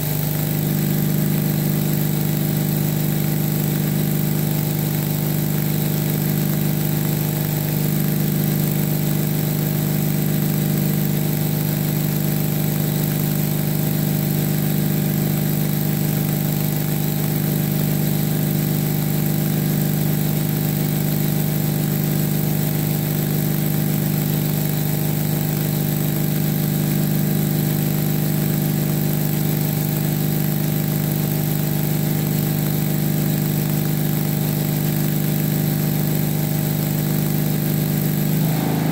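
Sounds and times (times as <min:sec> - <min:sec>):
loud steady low hum: 0:38.0 - 0:38.9.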